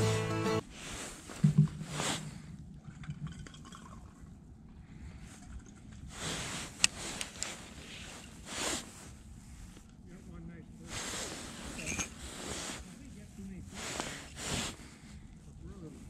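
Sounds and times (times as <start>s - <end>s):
clothing rustle: 0.6s - 2.5s, 6.0s - 10.2s, 10.8s - 16.0s.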